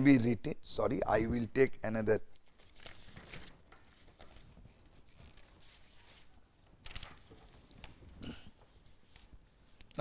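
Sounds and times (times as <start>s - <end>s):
paper sheets rustling: 2.5s - 10.0s.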